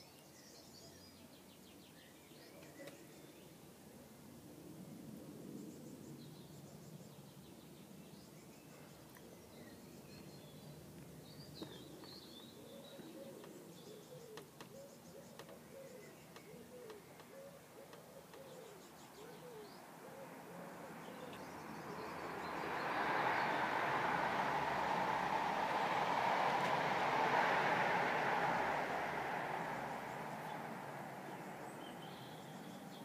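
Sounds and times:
dove cooing: 0:12.6 - 0:22.1
passing vehicle rushing: 0:19.8 - 0:33.0.

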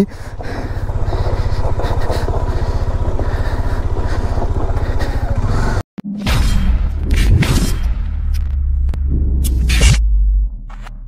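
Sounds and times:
motorcycle engine at low revs: 0:00.0 - 0:06.2.

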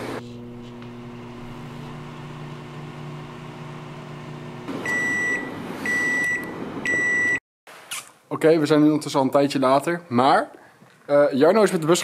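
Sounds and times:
low electric hum: 0:00.0 - 0:05.5.

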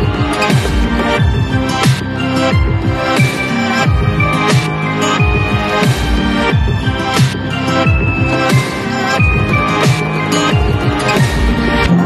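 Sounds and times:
electronic music with held tones: 0:00.0 - 0:12.0
sliding low bass notes: 0:10.7 - 0:12.0.

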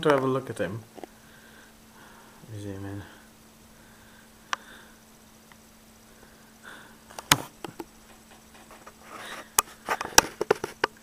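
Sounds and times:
faint low hum: 0:00.0 - 0:11.0
soft breaths: 0:01.0 - 0:10.5
light rustling: 0:07.1 - 0:11.0
sharp clicks and taps: 0:07.1 - 0:11.0.

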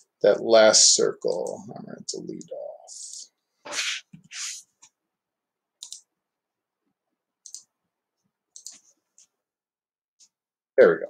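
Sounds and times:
short hissing noises: 0:03.6 - 0:04.8
computer mouse clicks: 0:05.8 - 0:06.1, 0:07.4 - 0:07.7, 0:08.5 - 0:09.3.

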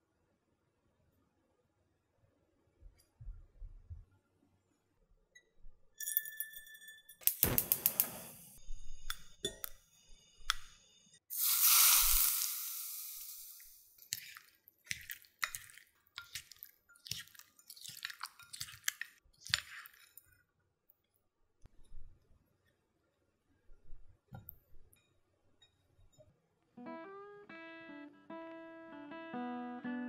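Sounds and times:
sudden loud hiss: 0:07.4 - 0:08.6, 0:11.3 - 0:13.6.

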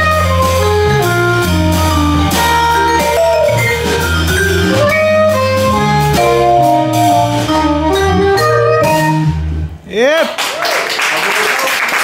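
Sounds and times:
drum kit: 0:00.0 - 0:10.4
bass: 0:00.0 - 0:10.8
vibraphone: 0:02.3 - 0:09.0
soprano saxophone melody: 0:04.6 - 0:09.4.

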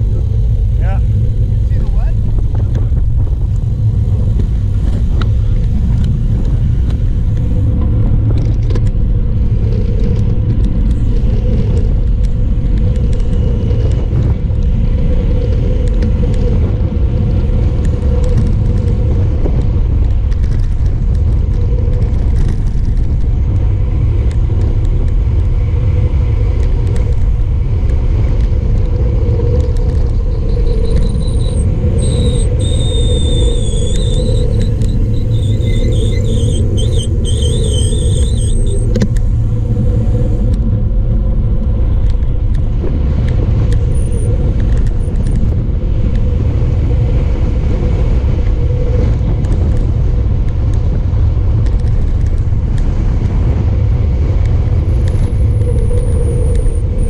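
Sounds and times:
wind rushing over microphone: 0:00.0 - 0:57.0
high-pitched brake squeal: 0:30.4 - 0:39.0.

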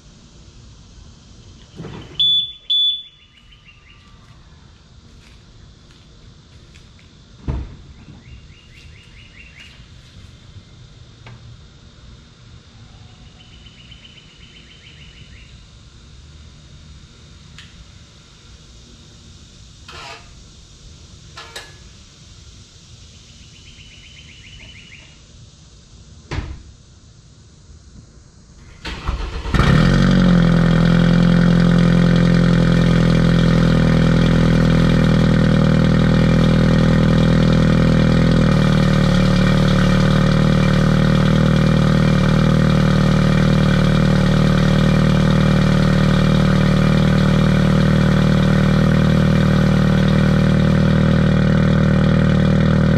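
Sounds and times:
car engine starting and idling: 0:28.6 - 0:52.9.

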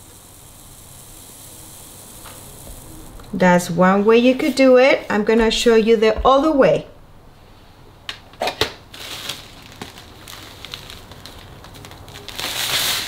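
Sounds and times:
plastic bag crinkling: 0:08.6 - 0:13.0.

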